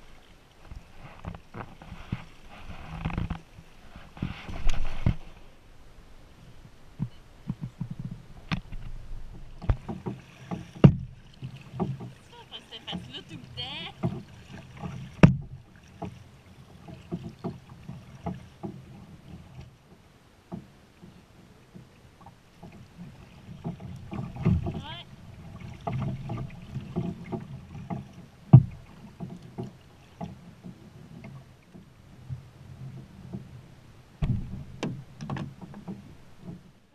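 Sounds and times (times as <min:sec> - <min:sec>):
paddle blades splashing: 0:00.0 - 0:36.9
water slapping plastic hull: 0:06.9 - 0:36.9
small knocks: 0:07.0 - 0:12.2, 0:25.6 - 0:33.5, 0:34.2 - 0:36.7.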